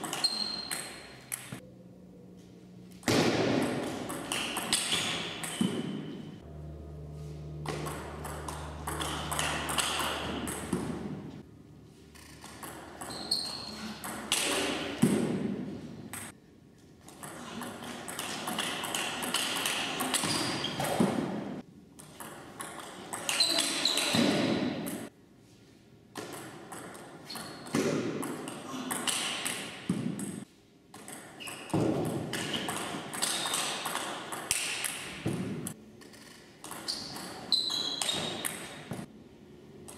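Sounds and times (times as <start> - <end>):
ping pong ball hitting paddles: 3.1 - 6.2, 7.6 - 11.2, 12.2 - 15.4, 26.2 - 30.4, 31.0 - 35.7
ping pong ball bouncing on table: 7.7 - 11.0.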